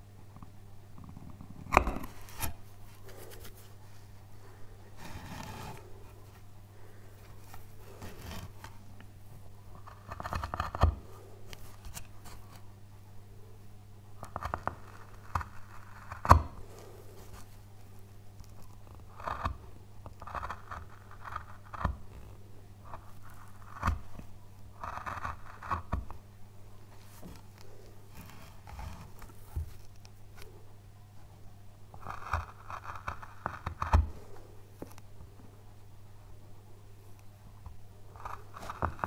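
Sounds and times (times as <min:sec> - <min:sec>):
faint low hum: 0:00.0 - 0:39.0
carving tool scraping wood: 0:01.1 - 0:03.8, 0:04.9 - 0:06.4, 0:07.2 - 0:08.8, 0:09.7 - 0:12.6, 0:14.2 - 0:17.6, 0:18.4 - 0:26.2, 0:27.0 - 0:30.5, 0:31.9 - 0:35.0, 0:38.2 - 0:39.0.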